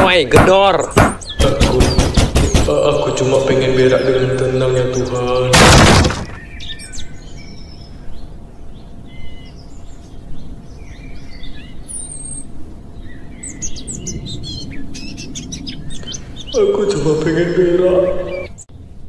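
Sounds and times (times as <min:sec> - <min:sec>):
birds chirping: 0:00.0 - 0:19.0
low steady ambient hiss: 0:00.0 - 0:19.0.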